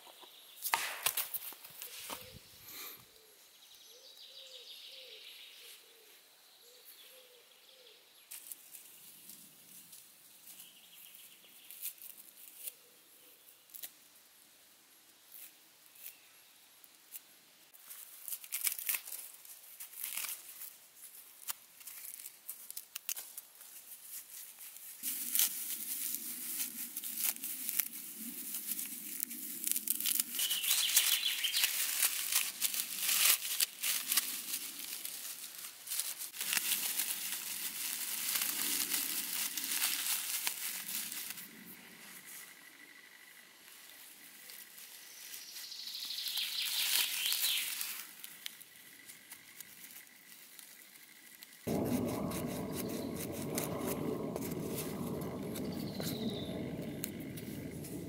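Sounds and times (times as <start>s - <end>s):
dry bark crackling and rustling: 17.8s - 41.8s, 43.8s - 58.0s.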